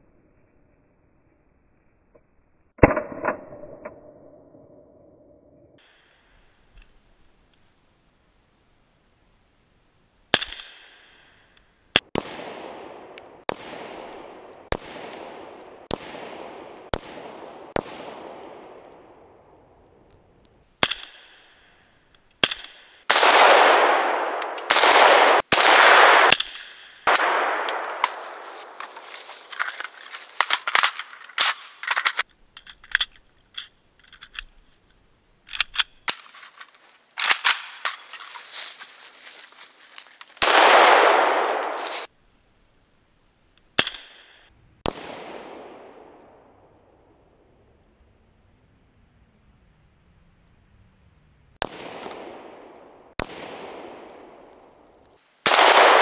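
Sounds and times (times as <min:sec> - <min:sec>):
rifle shots echoing: 0:12.0 - 0:19.6, 0:22.4 - 0:32.2, 0:36.1 - 0:39.3, 0:40.4 - 0:42.1, 0:44.8 - 0:46.6, 0:51.6 - 0:54.8, 0:55.4 - 0:56.0.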